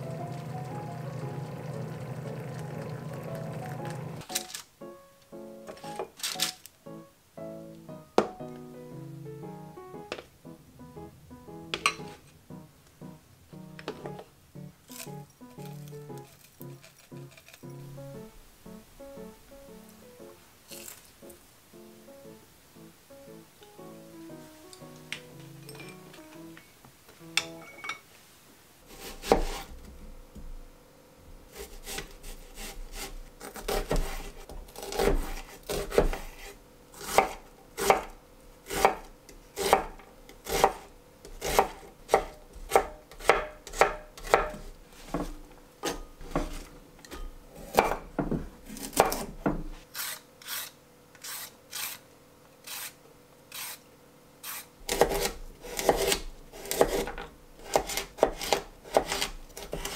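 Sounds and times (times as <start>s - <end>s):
knife chopping on wooden board: 29.0s - 29.7s, 31.5s - 38.1s, 38.7s - 49.7s, 54.9s - 59.9s.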